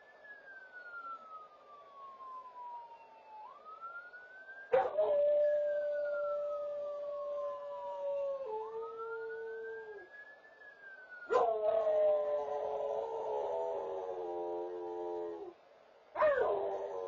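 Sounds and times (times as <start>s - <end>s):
faint siren rising and falling: 0.0s - 17.0s
dog howling: 11.3s - 15.5s, 16.2s - 17.0s.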